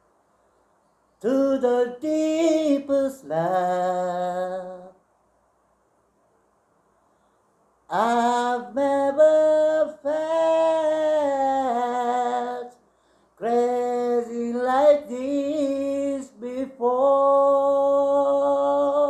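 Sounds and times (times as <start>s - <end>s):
man singing unaccompanied: 1.2s - 5.0s, 7.9s - 12.8s, 13.4s - 19.0s.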